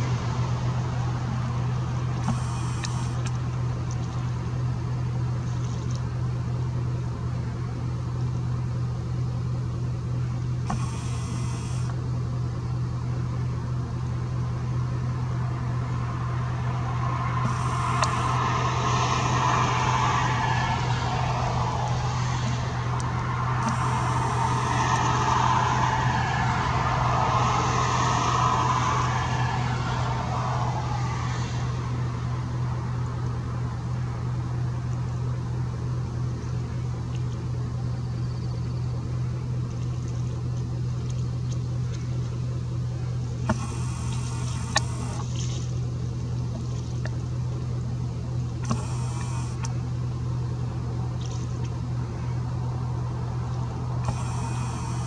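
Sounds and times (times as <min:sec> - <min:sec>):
passing vehicle road noise: 0:00.0 - 0:04.2, 0:15.2 - 0:34.6
low engine hum: 0:00.0 - 0:55.0.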